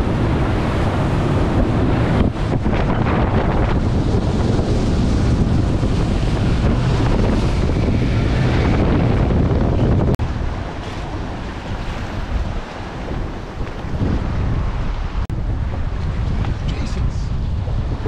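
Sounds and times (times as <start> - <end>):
boat rushing over choppy water: 0.0 - 18.0
wind buffeting microphone: 0.0 - 18.0.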